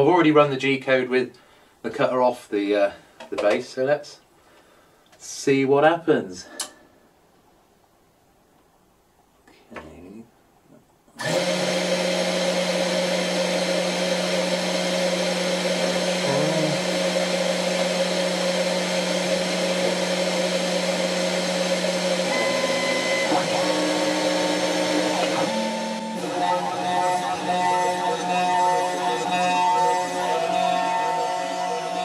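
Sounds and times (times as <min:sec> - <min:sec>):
router spindle motor humming: 0:11.2 - 0:32.0
stepper motors whining: 0:11.2 - 0:32.0.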